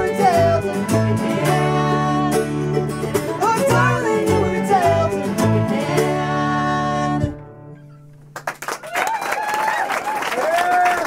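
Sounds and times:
acoustic string band playing: 0.0s - 8.4s.

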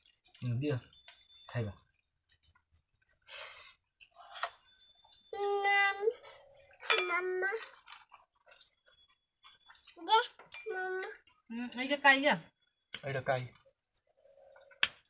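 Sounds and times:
steel bowls and cups clinking: 0.0s - 11.5s.

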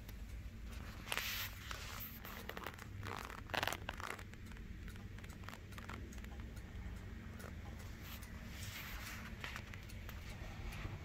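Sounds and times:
wall clock ticking: 0.0s - 0.8s, 3.8s - 11.0s
rustling and crackling: 0.7s - 6.7s, 7.3s - 10.4s.

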